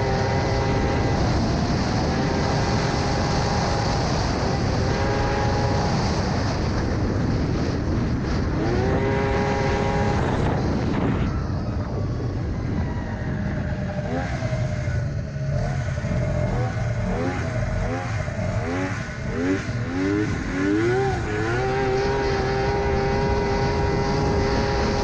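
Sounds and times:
snowmobile engine running hard: 0.0s - 25.0s
steady rushing noise: 0.0s - 25.0s.

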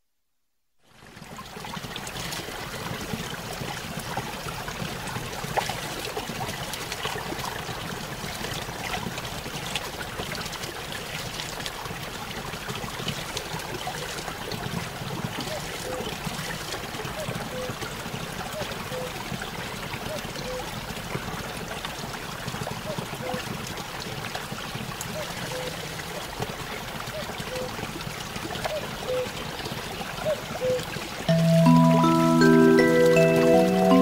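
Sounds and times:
running water trickling: 0.9s - 34.0s.

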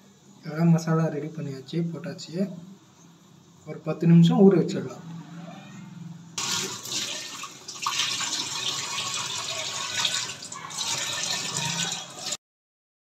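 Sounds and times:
running water rushing: 6.4s - 12.4s.

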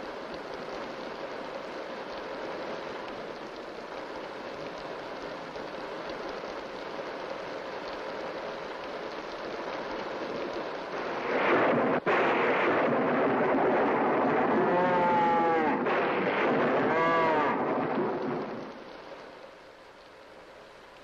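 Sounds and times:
rain: 0.0s - 21.0s
wind: 0.0s - 21.0s
cow bawling: 14.5s - 15.8s, 16.6s - 17.6s.

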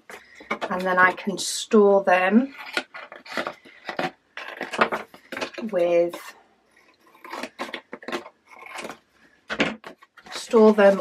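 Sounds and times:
scissors cutting cardboard: 2.4s - 6.3s, 7.0s - 9.0s.

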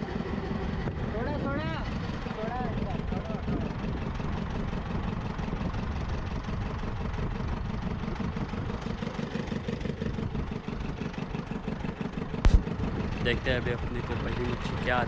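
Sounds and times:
boat engine idling: 0.0s - 15.0s.

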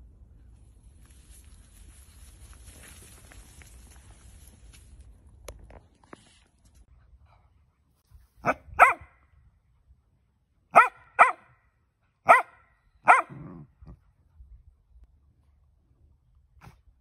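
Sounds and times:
dog barking: 8.4s - 9.2s, 10.7s - 11.6s, 12.2s - 13.7s.

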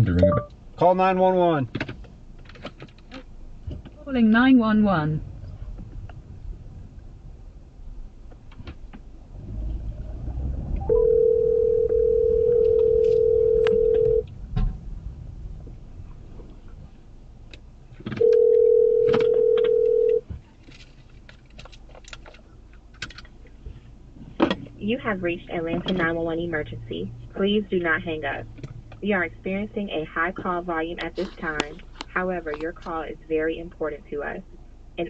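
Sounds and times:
telephone ringback tone: 10.8s - 14.2s, 18.2s - 20.2s.

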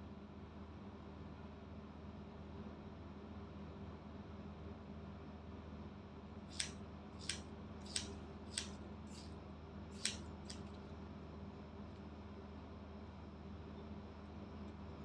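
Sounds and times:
scissors snipping hair: 6.5s - 9.3s, 10.0s - 10.8s.

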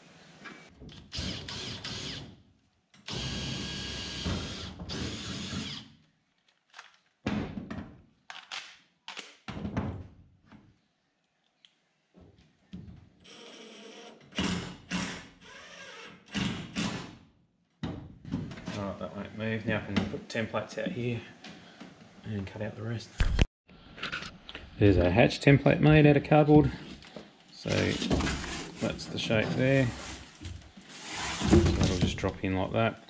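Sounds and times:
cordless driver sinking a screw: 3.0s - 5.9s.

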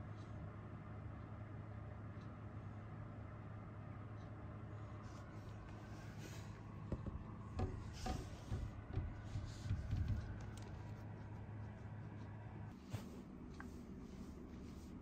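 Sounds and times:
faint low hum: 0.0s - 15.0s
soft taps and knocks: 6.8s - 11.0s.

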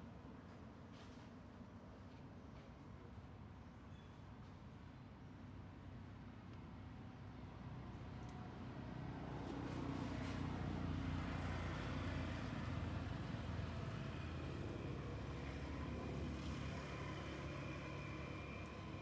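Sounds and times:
distant vehicle rumble: 9.4s - 19.0s.

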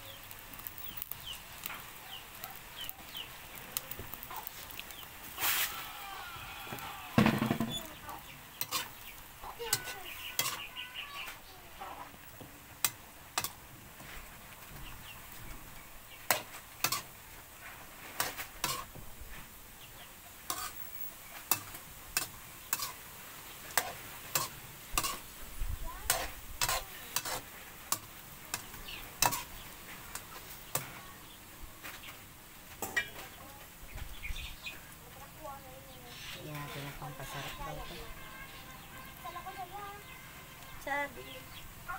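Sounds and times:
faint steady sizzle: 0.0s - 41.9s
metal spatula scraping a wok: 4.5s - 5.8s, 6.7s - 14.3s, 16.2s - 19.0s, 20.4s - 23.0s, 23.6s - 25.3s, 26.0s - 31.0s, 36.1s - 38.6s.

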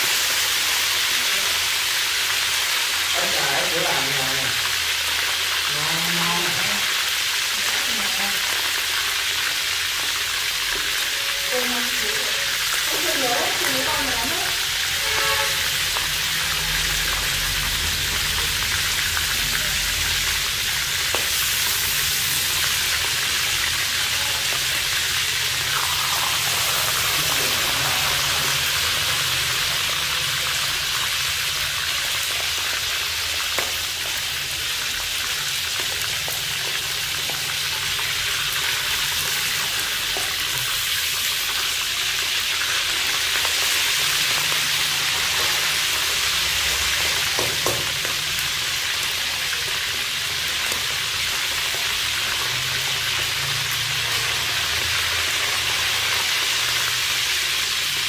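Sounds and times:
frog sizzling in hot oil: 0.0s - 58.0s
metal spatula scraping a wok: 14.8s - 15.8s.

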